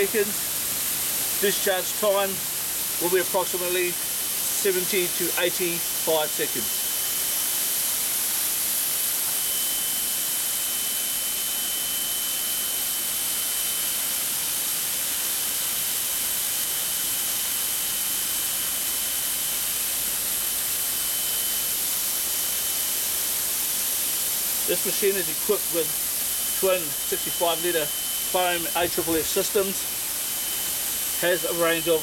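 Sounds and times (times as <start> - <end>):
nozzles spraying with hiss: 0.0 - 32.0
thin high tone: 24.7 - 32.0.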